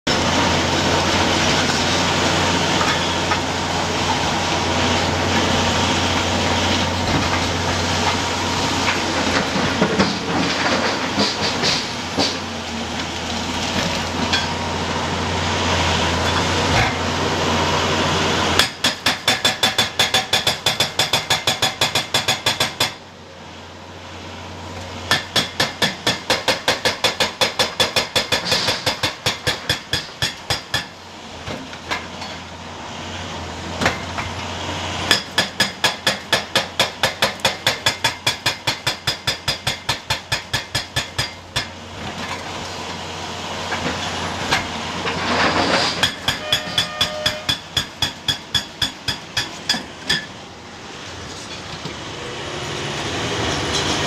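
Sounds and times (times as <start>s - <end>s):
excavator engine hum: 0.1s - 22.4s, 30.1s - 54.0s
hydraulic hammer breaking rock: 18.6s - 23.0s, 25.1s - 31.0s, 35.1s - 41.8s.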